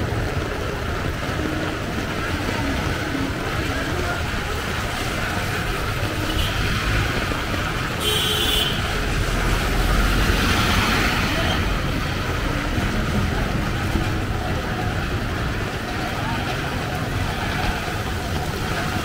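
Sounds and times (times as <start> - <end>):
heavy rain falling: 0.0 - 19.0
traffic: 0.0 - 19.0
vehicle low rumble: 8.8 - 19.0.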